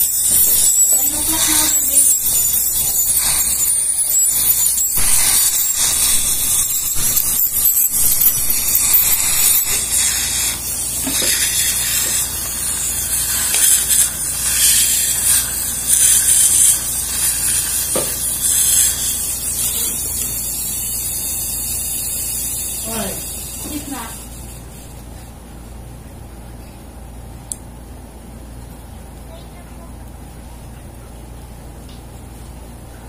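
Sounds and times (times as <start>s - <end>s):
dental suction hissing: 0.0s - 25.0s.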